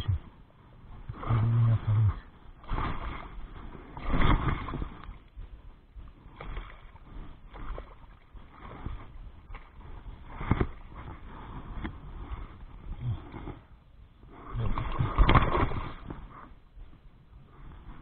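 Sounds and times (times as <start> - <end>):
water splashing from thrashing fish: 2.6 - 3.4, 4.0 - 5.2, 14.6 - 16.1.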